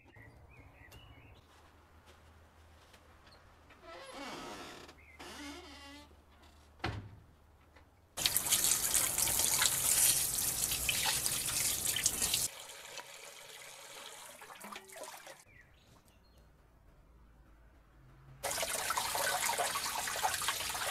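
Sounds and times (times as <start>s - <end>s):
tap water splashing on meat: 8.2s - 13.2s, 14.4s - 15.4s
quieter running water: 8.2s - 15.4s, 18.4s - 20.9s.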